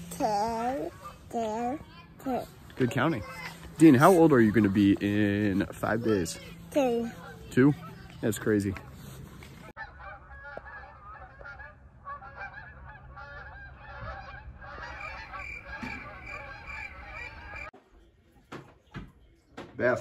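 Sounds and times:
geese honking: 9.7 - 17.7.

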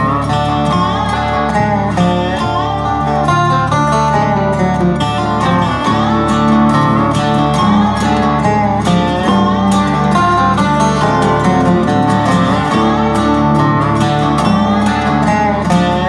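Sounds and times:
country music with guitar: 0.0 - 16.0.

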